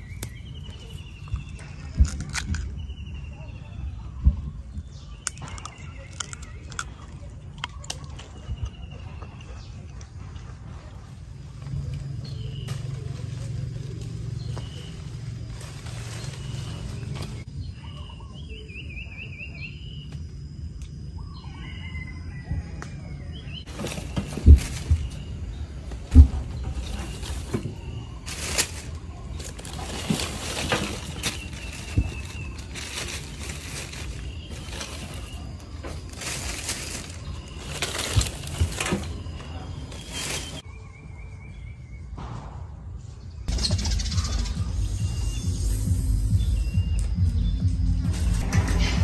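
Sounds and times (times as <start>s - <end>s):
low outdoor rumble: 0.0s - 41.3s, 42.2s - 49.0s
small birds singing: 0.0s - 49.0s
leafy fruit bunches handled: 10.8s - 17.5s, 23.4s - 40.6s
plastic bags rustling: 12.4s - 17.5s, 23.7s - 40.6s.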